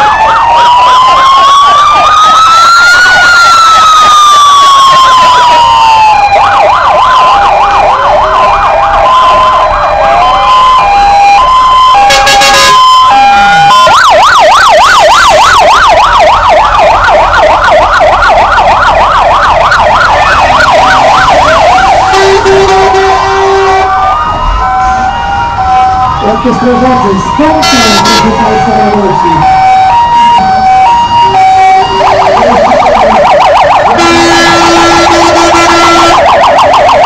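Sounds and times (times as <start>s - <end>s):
fast yelp siren: 0.0s - 37.0s
siren slow falling wail: 0.0s - 37.0s
two-tone hi-lo siren: 0.0s - 37.0s
short loud horn blast: 27.6s - 28.2s.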